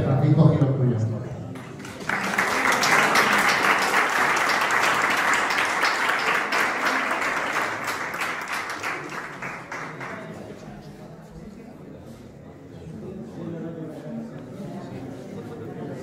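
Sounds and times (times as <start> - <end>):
audience applauding: 1.6 - 10.6.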